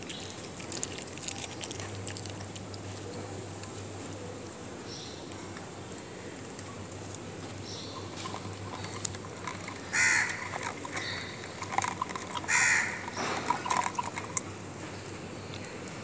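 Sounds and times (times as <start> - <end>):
dog eating from a bowl: 0.0 - 3.7, 6.5 - 14.6
crow cawing: 9.9 - 10.4, 12.5 - 13.2.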